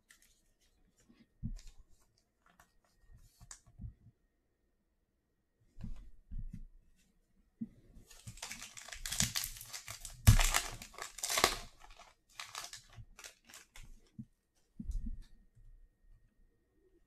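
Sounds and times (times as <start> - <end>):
foil wrapper tearing and crinkling: 8.1 - 13.8.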